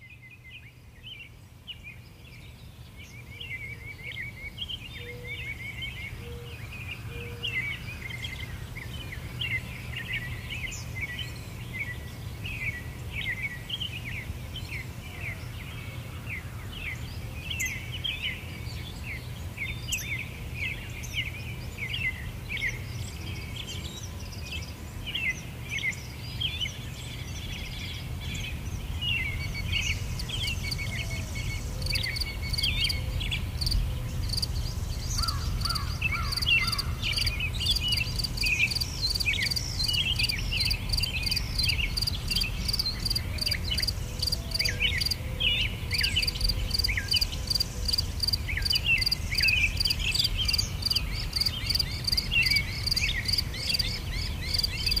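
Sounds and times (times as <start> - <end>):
songbirds chirping: 0.0 - 55.0
insects chirping: 29.1 - 45.2, 45.9 - 55.0.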